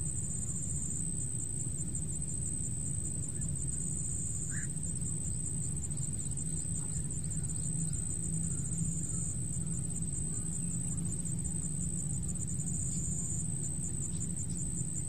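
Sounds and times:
high insect trill: 0:00.0 - 0:15.0
faint chirps: 0:03.2 - 0:15.0.

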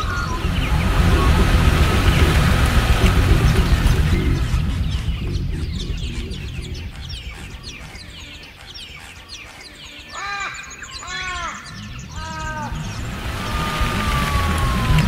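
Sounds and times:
car engine: 0:00.0 - 0:06.9, 0:12.7 - 0:15.0
tyres rumbling on dirt track: 0:00.0 - 0:07.7, 0:12.2 - 0:15.0
high downward bird chirps: 0:00.0 - 0:15.0
crow cawing: 0:04.4 - 0:15.0.

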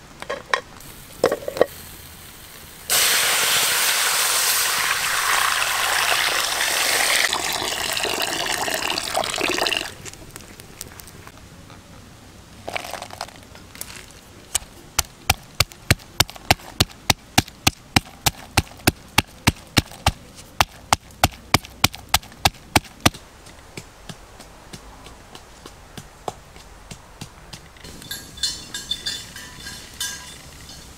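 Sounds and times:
pestle pounding in wooden mortar: 0:15.0 - 0:23.2.

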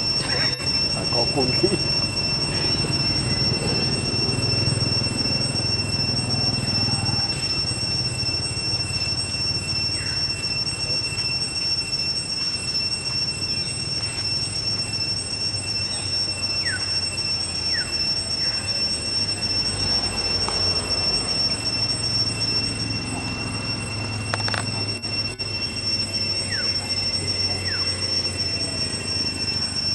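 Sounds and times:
low hum: 0:00.0 - 0:15.8
cicadas droning: 0:00.0 - 0:29.9.

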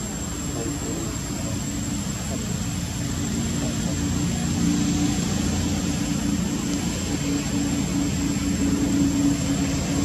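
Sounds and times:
low engine drone: 0:00.0 - 0:10.0
noisy hiss: 0:00.0 - 0:10.0.

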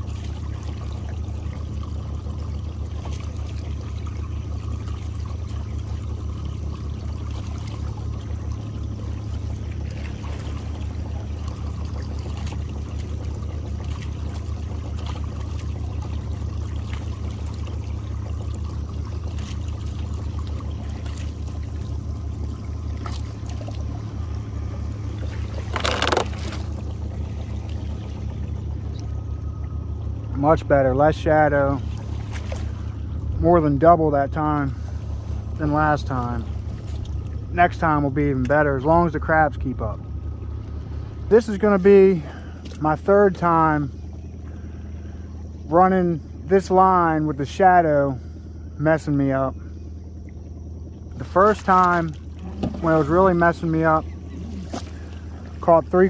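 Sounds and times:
net splashing into water: 0:00.0 - 0:29.8, 0:31.8 - 0:33.1, 0:51.3 - 0:53.7, 0:54.4 - 0:56.0
water pouring and trickling: 0:00.0 - 0:45.9, 0:50.2 - 0:56.0
low motor hum: 0:00.0 - 0:56.0.

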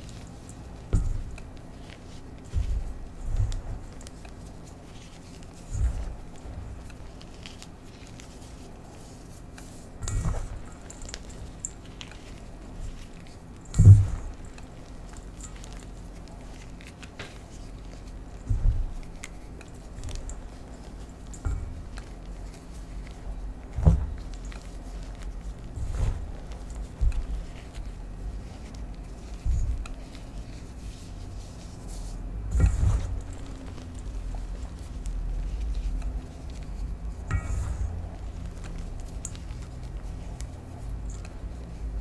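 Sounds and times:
low thuds: 0:00.8 - 0:01.4, 0:13.7 - 0:14.6, 0:18.4 - 0:19.1, 0:23.2 - 0:24.5.

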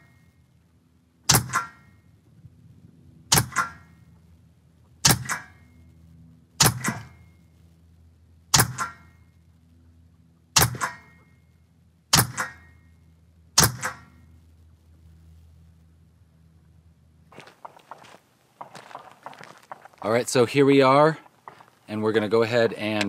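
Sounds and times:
air pistol shots: 0:01.2 - 0:02.0, 0:03.3 - 0:03.9, 0:05.0 - 0:05.6, 0:06.6 - 0:07.2, 0:08.5 - 0:09.1, 0:10.5 - 0:11.2, 0:12.1 - 0:12.7, 0:13.6 - 0:14.2.

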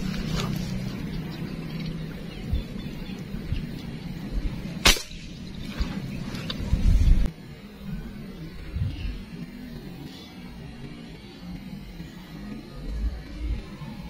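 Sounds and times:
air rifle shot: 0:04.8 - 0:05.4.

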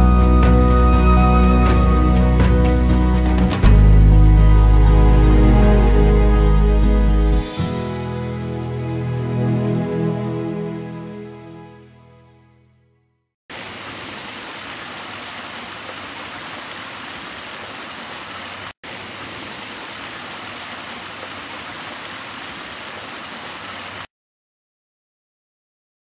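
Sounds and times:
creek water running over rocks: 0:13.5 - 0:24.1.

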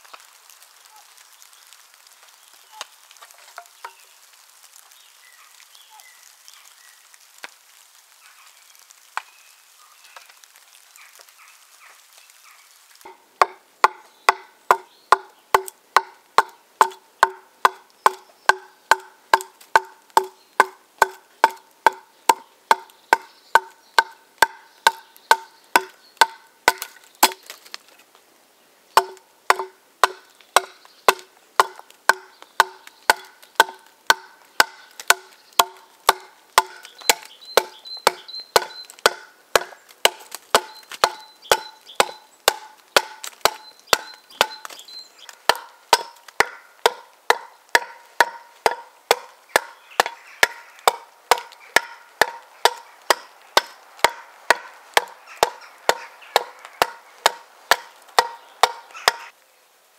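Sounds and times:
axe chopping wooden plank: 0:13.1 - 0:27.6, 0:29.0 - 0:44.8, 0:45.5 - 0:59.3.

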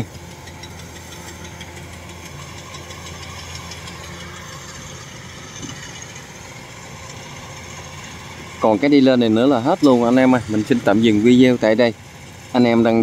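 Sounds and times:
combine harvester engine hum: 0:00.0 - 0:13.0.

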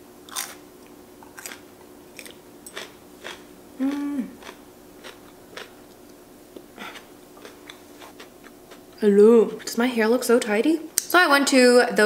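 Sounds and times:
crunchy chewing: 0:00.3 - 0:00.6, 0:01.2 - 0:08.9
person humming: 0:03.8 - 0:04.4.

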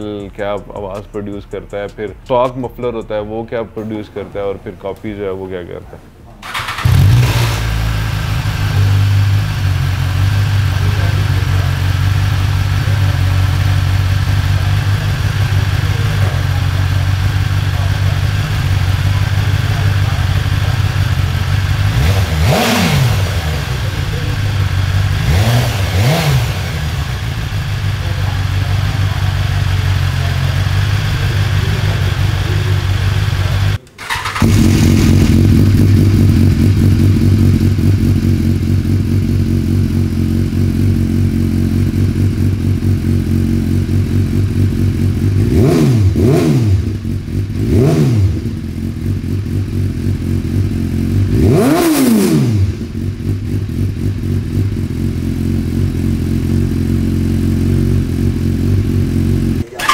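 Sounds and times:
motorcycle engine idling: 0:06.4 - 0:59.9
motorcycle revs blipped: 0:06.4 - 0:59.9.

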